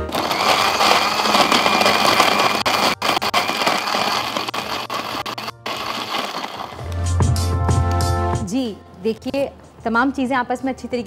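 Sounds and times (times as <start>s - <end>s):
electric blender crushing ice: 0.0s - 6.8s.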